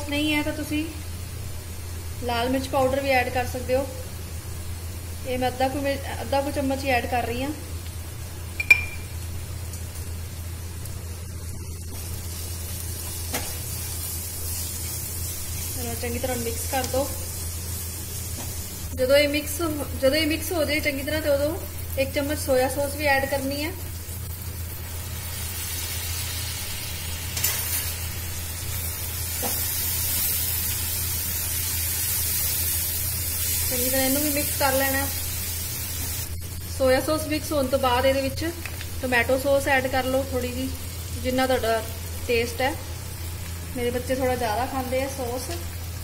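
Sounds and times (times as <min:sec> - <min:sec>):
steady low hum: 0:00.0 - 0:46.0
vegetables sizzling in a pan: 0:00.0 - 0:46.0
metal spoon clinking on pan: 0:08.6 - 0:09.1.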